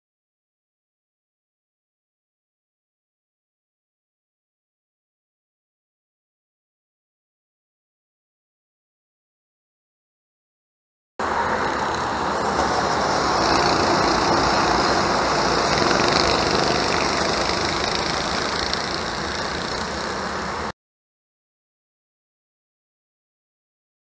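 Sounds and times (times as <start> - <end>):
go-kart engines droning: 11.2 - 20.7.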